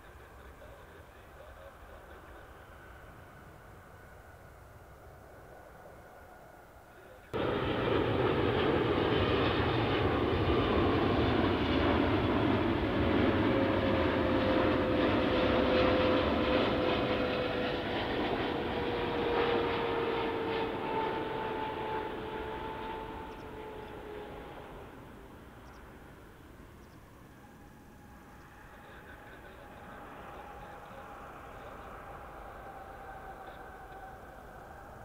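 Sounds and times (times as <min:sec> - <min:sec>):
jet engines rushing: 0:07.3 - 0:35.0
jet engine whine falling: 0:07.4 - 0:35.0.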